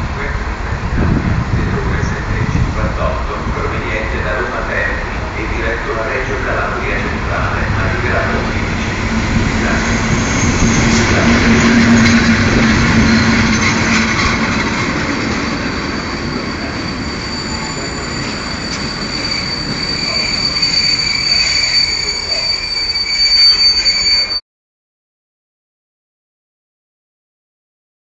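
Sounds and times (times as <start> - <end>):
freight wagons rumbling past: 0.0 - 24.2
electric locomotive humming: 0.0 - 24.4
high wheel squeal: 6.2 - 24.4.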